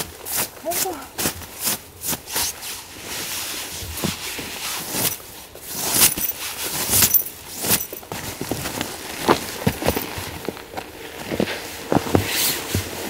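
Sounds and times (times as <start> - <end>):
hands scraping snow: 0.2 - 13.0
nylon jacket rustling: 4.4 - 13.0.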